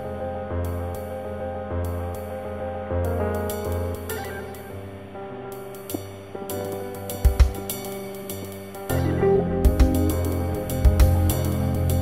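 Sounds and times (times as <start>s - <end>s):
light drum beat with hi-hat: 5.8s - 12.0s.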